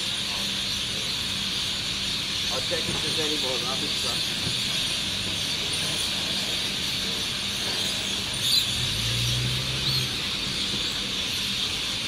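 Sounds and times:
flock of birds chattering: 0.0s - 12.0s
steady hiss: 0.0s - 12.0s
low engine hum: 5.1s - 12.0s.

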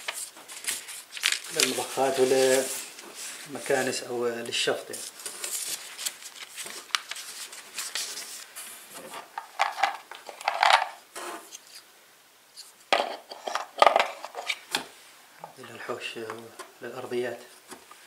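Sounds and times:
paper leaflets rustling: 0.0s - 11.8s.

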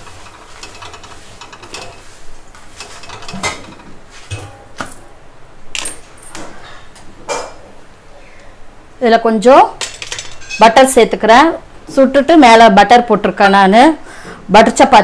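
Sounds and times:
spatula scraping and tapping griddle: 0.0s - 5.0s.

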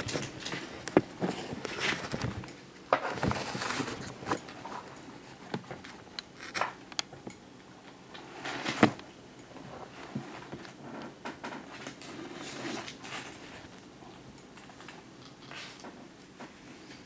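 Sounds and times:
scratchy rustles: 3.0s - 6.6s.

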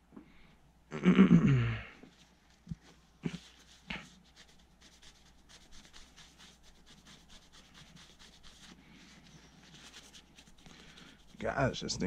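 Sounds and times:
paper towel scrubbing metal: 3.2s - 11.9s.

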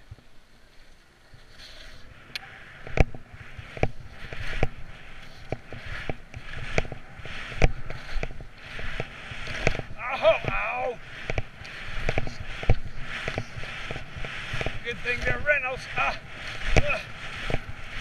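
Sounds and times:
skis and poles knocking: 0.0s - 18.0s
skis scraping over snow: 0.0s - 18.0s.

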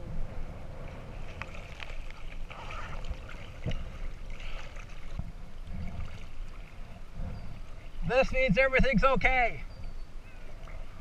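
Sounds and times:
low rumbling wash: 0.0s - 11.0s
river water lapping and splashing: 0.3s - 11.0s
small splashes and clicks: 1.3s - 5.3s.

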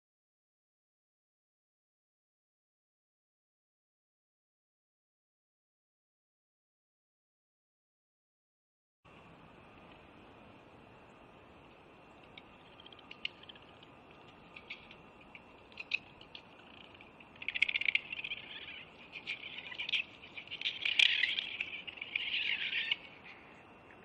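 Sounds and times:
squirrel chattering: 12.1s - 24.0s.

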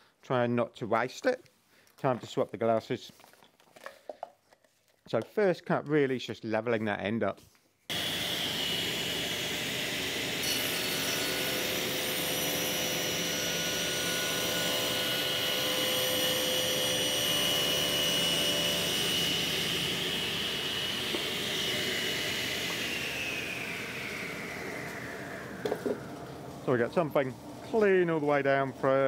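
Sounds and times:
table saw cutting wood: 7.9s - 27.0s
saw blade whine: 7.9s - 29.0s.

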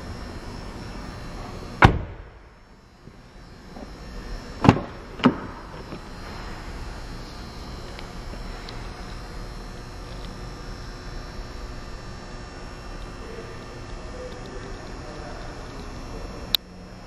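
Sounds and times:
car door shutting: 1.8s - 2.3s.

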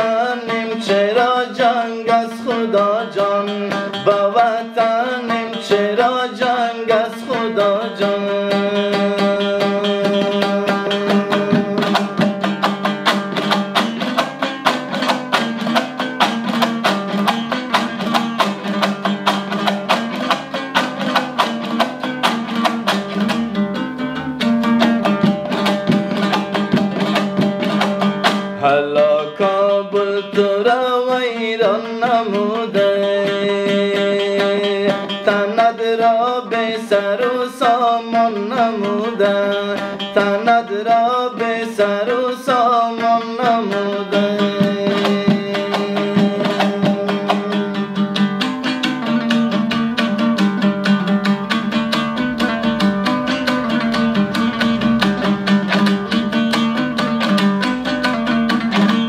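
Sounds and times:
man singing: 0.0s - 14.3s, 28.5s - 50.4s
lute strummed fast: 0.0s - 59.0s.

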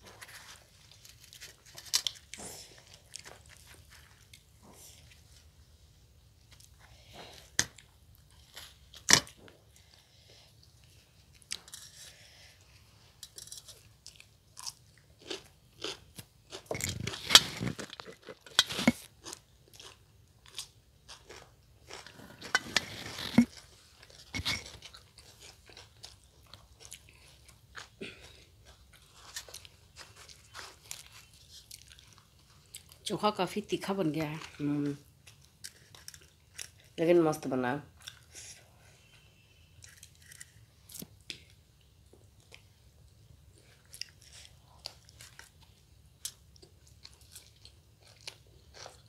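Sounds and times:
soft chewing: 0.0s - 33.2s, 34.2s - 37.0s, 37.9s - 49.0s
crunchy bites: 14.1s - 27.9s.

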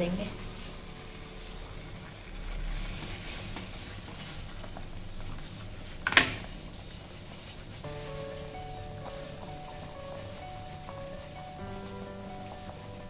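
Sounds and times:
soft background music: 0.0s - 4.4s, 7.2s - 13.0s
water boiling in saucepan: 0.0s - 13.0s.

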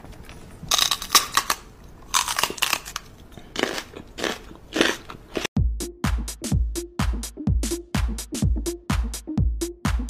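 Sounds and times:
dance beat with kick drum: 5.6s - 10.0s.

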